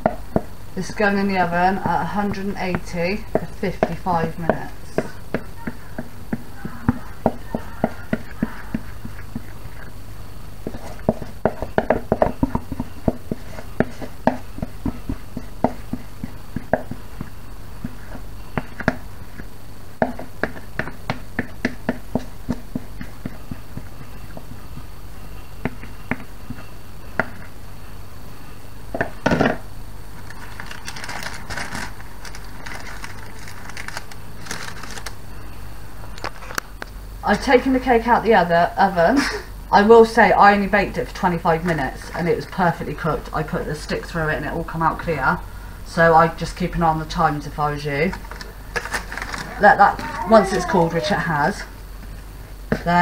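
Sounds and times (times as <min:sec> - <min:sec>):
crinkling and scraping: 0:30.2 - 0:35.2, 0:48.1 - 0:51.2.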